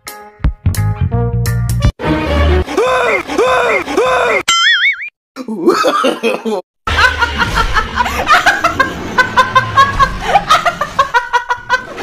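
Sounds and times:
person laughing: 5.4 - 12.0.

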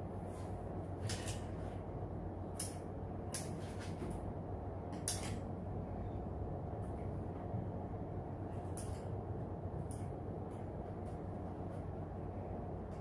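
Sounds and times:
low background hum: 0.0 - 13.0
scissors snipping string: 2.5 - 3.6, 8.6 - 9.2.

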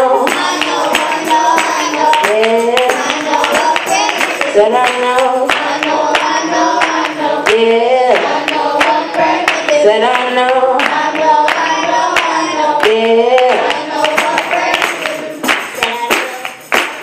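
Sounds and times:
girl singing into microphone: 0.0 - 16.7
children's choir singing: 0.0 - 17.0
hand-clapping on the beat: 0.0 - 17.0.

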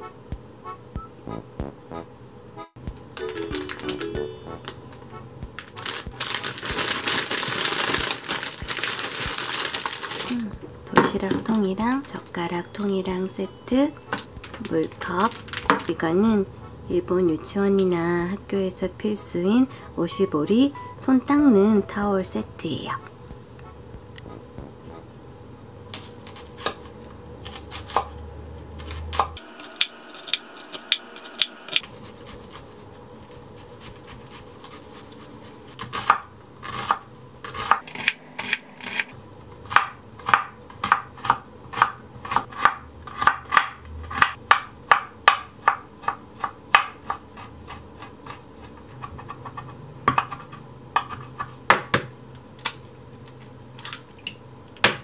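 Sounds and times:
knife chopping on wooden board: 35.8 - 39.1, 39.7 - 52.1.

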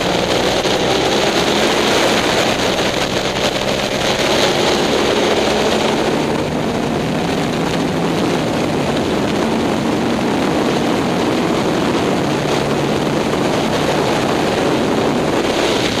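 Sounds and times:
motorcycle engine: 0.0 - 16.0
wind rush on microphone: 0.0 - 16.0.

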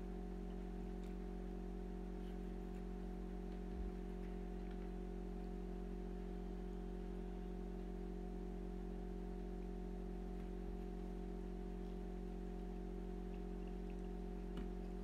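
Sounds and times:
electrical hum: 0.0 - 15.0
faint ticks: 13.2 - 15.0.

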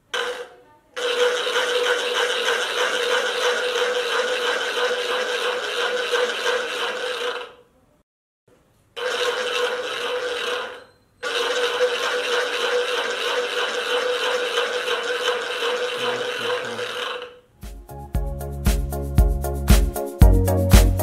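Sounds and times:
homemade noise maker rattling buzz: 0.0 - 7.7, 9.0 - 17.5
music: 17.6 - 21.0.

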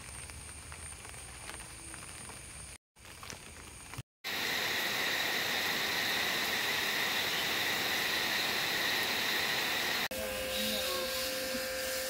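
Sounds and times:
crickets trilling: 0.0 - 11.9
steady hiss: 3.8 - 12.0.

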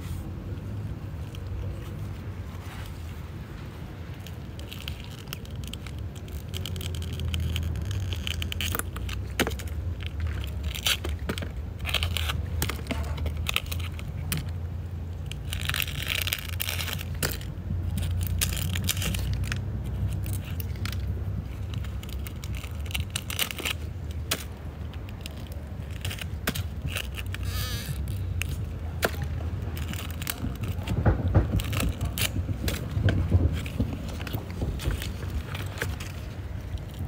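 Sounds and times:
dry leaves crackling and rustling: 0.0 - 37.0
steady low rumble: 11.5 - 37.0.

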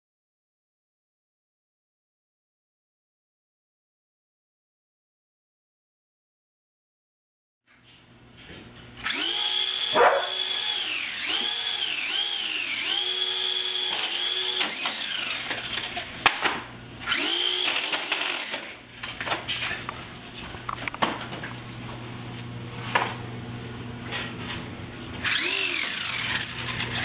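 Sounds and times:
toy flying saucer whine: 25.2 - 27.0.

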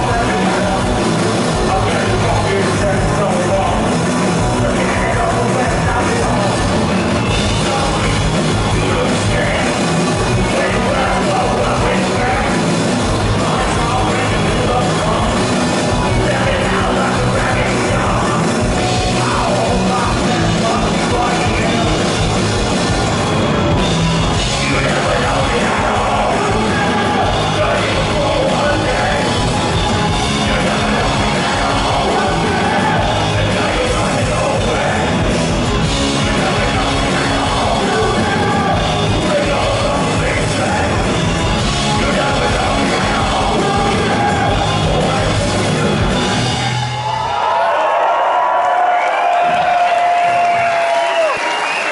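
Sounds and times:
electric bass guitar: 0.0 - 47.1
keyboard: 0.0 - 47.1
drums: 0.0 - 51.9.

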